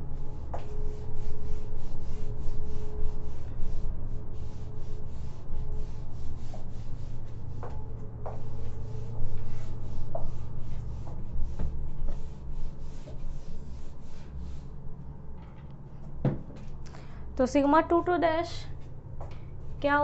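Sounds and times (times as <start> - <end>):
duster wiping whiteboard: 0.0 - 14.9.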